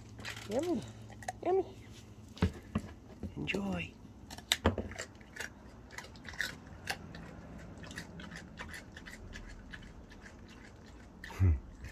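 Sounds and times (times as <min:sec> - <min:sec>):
animal crunching carrot: 0:03.4 - 0:11.9.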